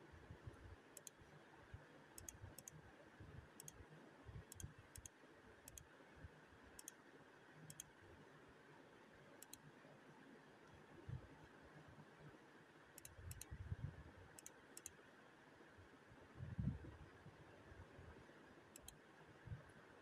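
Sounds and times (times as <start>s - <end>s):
small sharp ticks: 1.0s - 1.3s, 2.2s - 2.8s, 3.6s - 3.8s, 4.5s - 5.9s, 6.8s - 7.0s, 7.6s - 8.0s, 9.4s - 9.8s, 13.0s - 13.6s, 14.3s - 15.0s, 18.7s - 19.1s.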